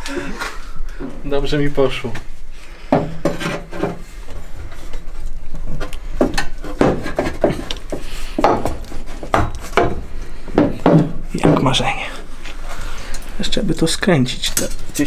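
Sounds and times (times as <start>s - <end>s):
metal pipes knocking and scraping: 2.8s - 5.1s, 5.7s - 12.0s.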